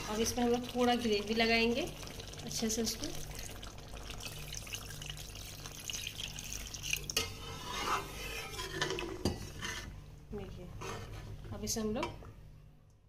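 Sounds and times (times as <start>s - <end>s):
water pouring into a pan: 0.0s - 7.2s
spatula stirring and scraping pan: 7.2s - 11.6s.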